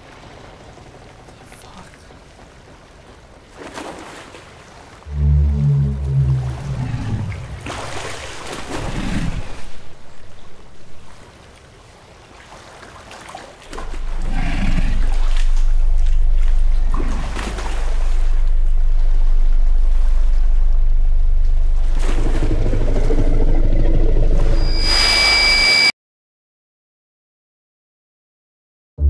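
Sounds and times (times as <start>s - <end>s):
water lapping against wooden dock: 0.0s - 24.6s
steady low drone: 5.1s - 11.2s, 13.7s - 25.9s.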